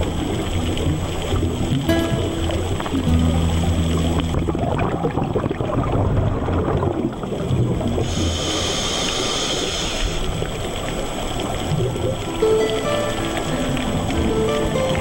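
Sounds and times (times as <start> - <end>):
underwater water rush: 0.0 - 15.0
bright hiss: 8.1 - 10.5.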